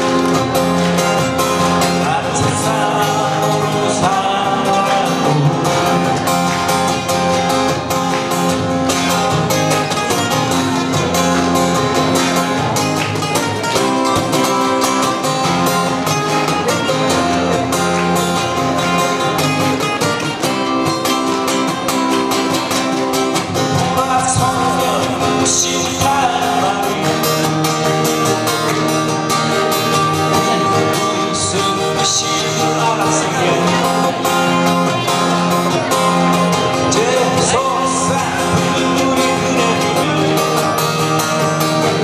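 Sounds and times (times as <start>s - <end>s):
acoustic guitars strumming: 0.0s - 42.0s.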